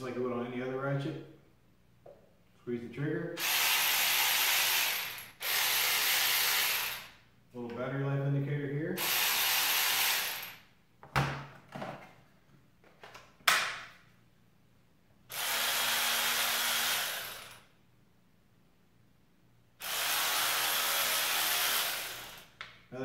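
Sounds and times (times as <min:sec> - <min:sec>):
electric ratchet whirring: 0:03.4 - 0:07.2, 0:09.0 - 0:10.7, 0:15.3 - 0:17.7, 0:19.8 - 0:22.6.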